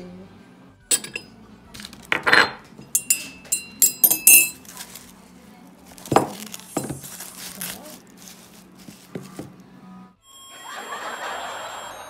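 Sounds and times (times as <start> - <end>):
spoon clinking in ceramic mug: 0.9 - 1.3, 2.2 - 4.6.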